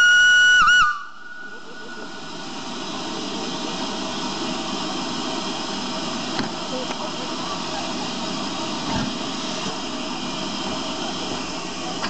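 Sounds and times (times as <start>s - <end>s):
steam locomotive whistle: 0.0s - 2.2s
steam hissing: 0.0s - 12.0s.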